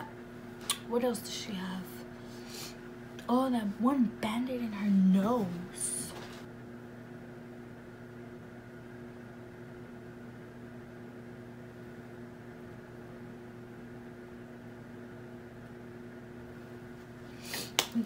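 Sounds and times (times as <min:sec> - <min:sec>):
room hum: 0:00.0 - 0:18.0.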